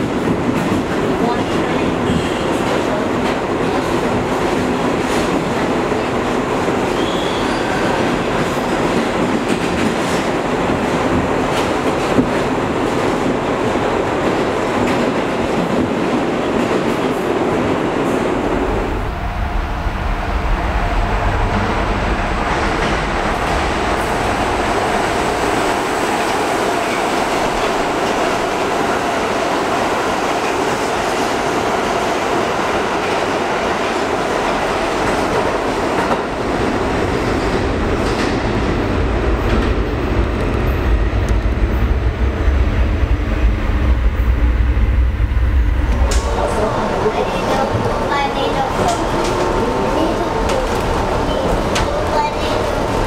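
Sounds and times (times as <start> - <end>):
clickety-clack over rail joints: 0.0 - 18.2, 32.9 - 41.8, 45.8 - 53.0
subway wheel and track noise: 0.0 - 53.0.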